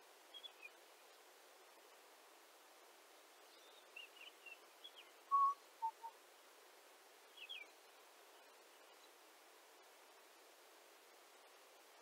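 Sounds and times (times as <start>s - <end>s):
faint steady hiss: 0.0s - 12.0s
bird singing: 0.3s - 0.8s, 3.5s - 6.1s, 7.4s - 9.1s.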